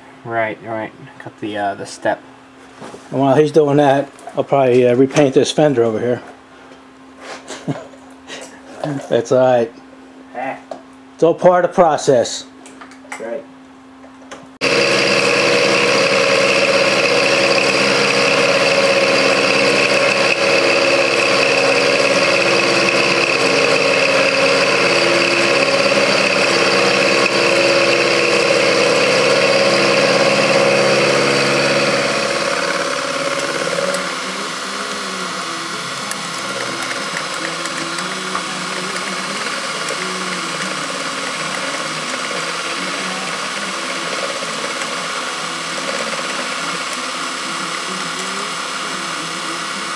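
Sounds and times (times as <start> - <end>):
milling machine cutting steel: 14.6 - 49.9.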